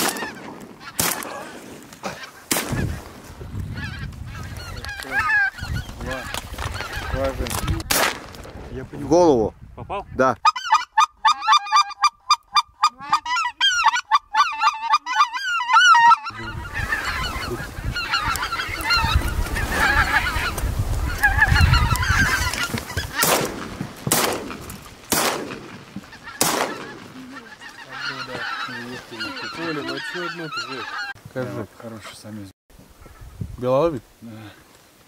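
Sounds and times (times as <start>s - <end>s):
shotgun shots: 0.0s - 1.4s, 2.5s - 2.8s, 7.9s - 8.4s, 23.2s - 25.8s, 26.4s - 27.1s
goose call honks: 0.0s - 3.0s, 3.8s - 7.2s, 10.4s - 23.4s, 26.1s - 31.1s
flock of geese honking: 0.0s - 7.9s, 10.4s - 32.4s
low wind rumble: 2.5s - 10.4s, 16.3s - 27.7s, 32.7s - 34.2s.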